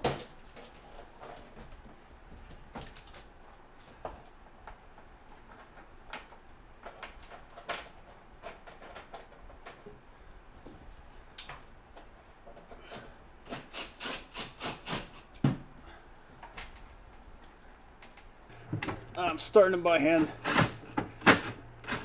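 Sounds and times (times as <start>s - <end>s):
hand tools clicking and knocking: 12.0s - 15.6s.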